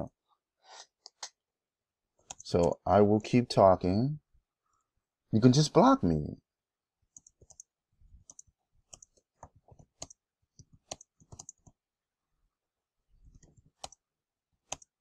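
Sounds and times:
keyboard keys clicking: 8.2 - 11.7, 14.7 - 15.0.

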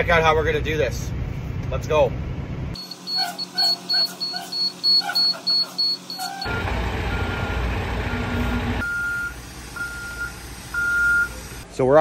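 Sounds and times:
heavy truck engine running: 1.1 - 11.7
reversing alarm beeping: 2.8 - 11.4.

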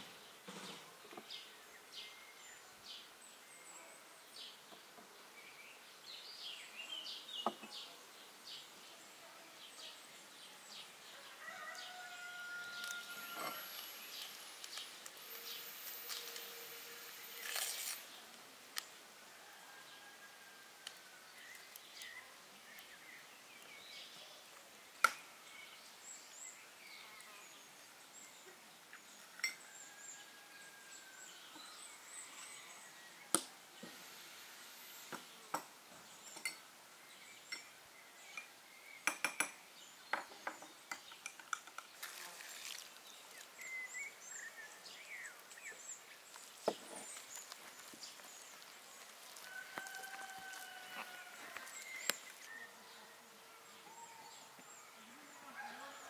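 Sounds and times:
clinks against a glass bowl: 38.3 - 39.6
bird chirps: 50.4 - 53.1.

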